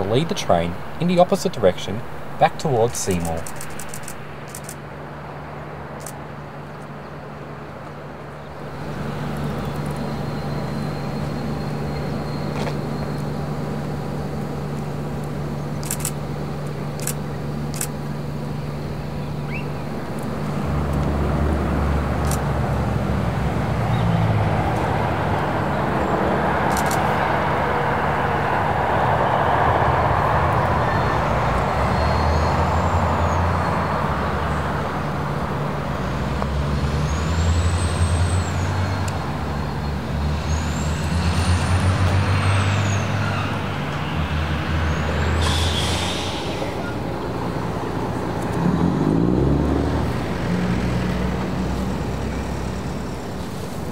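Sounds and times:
broad rushing noise: 0.0 - 53.9
diesel locomotive engines: 0.0 - 53.9
high squeals: 44.8 - 47.3.

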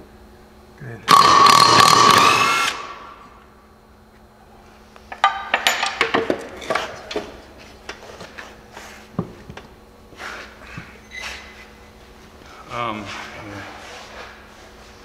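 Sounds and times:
impact wrench buzzing: 1.1 - 3.3.

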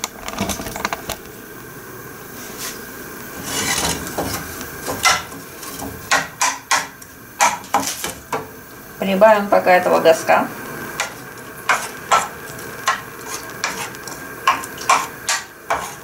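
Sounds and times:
wooden spoon scraping a frying pan: 2.4 - 8.3, 10.9 - 16.0
spoon knocking against pan: 4.2 - 8.5, 14.4 - 15.9.

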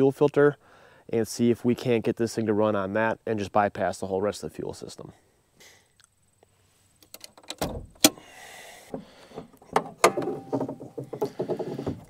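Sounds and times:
metallic clicks and rattles: 7.0 - 8.2.

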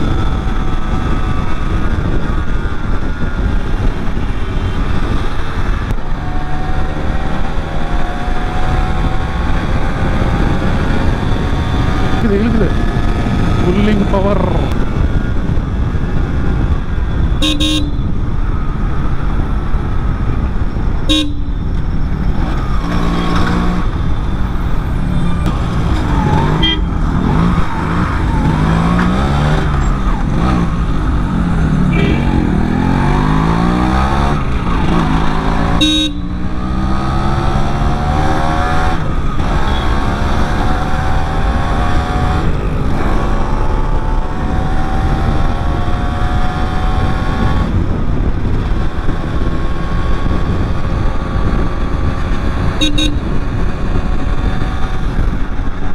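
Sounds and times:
wind and road noise: 0.0 - 55.9
two-stroke motorcycle engine revving: 25.4 - 55.9.

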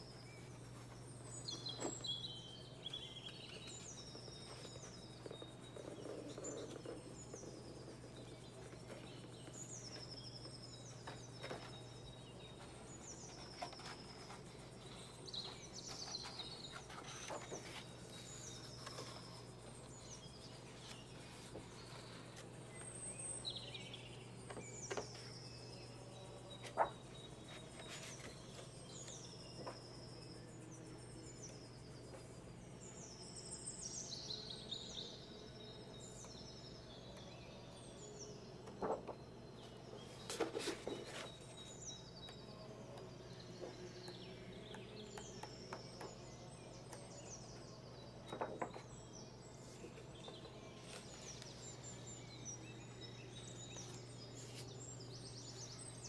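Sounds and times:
birds chirping: 0.0 - 56.0
faint low hum: 0.0 - 56.0
book pages turning: 2.9 - 23.0, 26.6 - 29.8, 38.7 - 41.8, 49.6 - 51.6.

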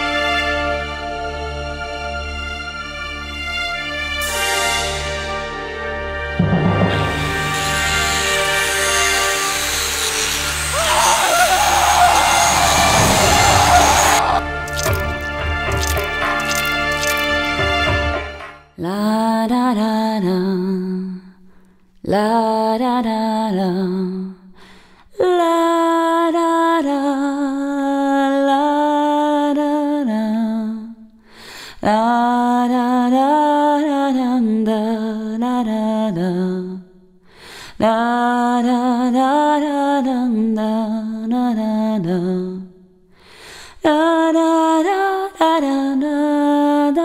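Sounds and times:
person singing wordless melody: 18.8 - 21.4
singer breathing: 24.5 - 25.1, 31.2 - 31.8, 37.2 - 37.8, 43.1 - 43.8.

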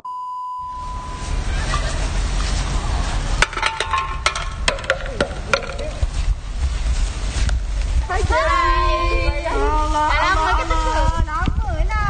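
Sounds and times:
steady tone: 0.6 - 2.9
wind rumbling on microphone: 0.7 - 12.0.

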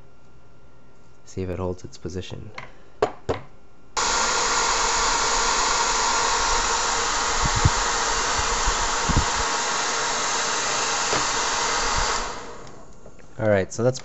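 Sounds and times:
hair dryer running: 4.0 - 13.1.

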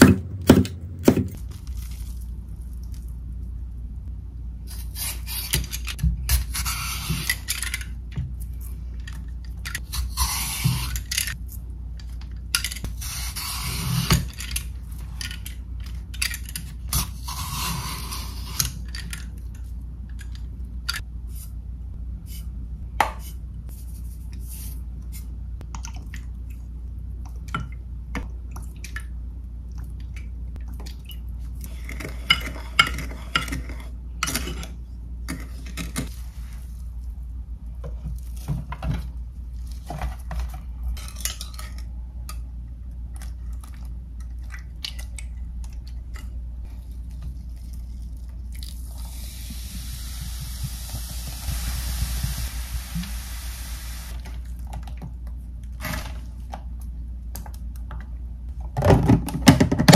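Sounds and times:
rushing hiss-like noise: 49.0 - 54.2.

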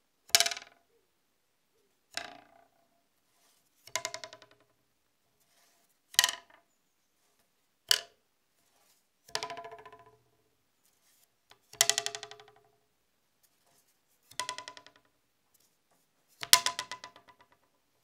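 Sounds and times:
wooden stick twanging on plank: 0.3 - 0.8, 2.1 - 2.7, 3.8 - 4.7, 6.1 - 6.6, 7.9 - 8.2, 9.3 - 10.2, 11.7 - 12.8, 14.3 - 15.1, 16.4 - 17.7.

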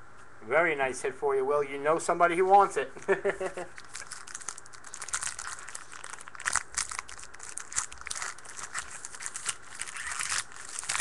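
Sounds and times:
foil wrapper crinkling and tearing: 3.6 - 11.0.

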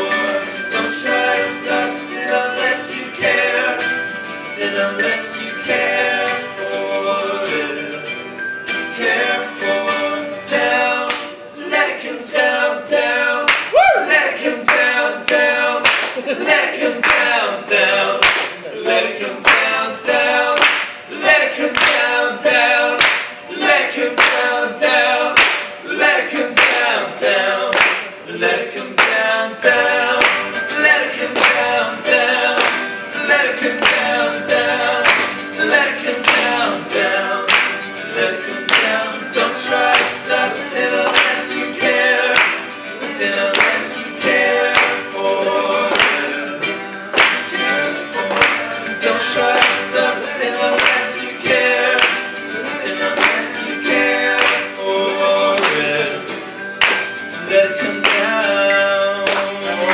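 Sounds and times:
acoustic band playing: 0.0 - 59.9
group singing: 0.0 - 59.9
clapping beat: 13.5 - 59.9.

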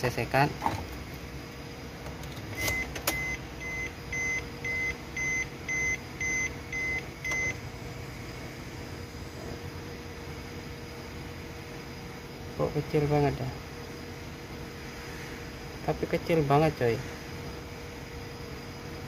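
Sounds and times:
car warning buzzer beeping: 2.5 - 7.6.

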